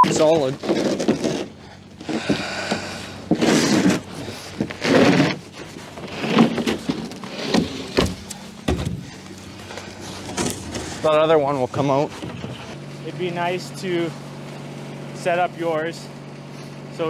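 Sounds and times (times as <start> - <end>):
plywood scraping over ice: 0.1 - 8.2, 9.0 - 13.3
dull thumps: 0.6 - 11.0.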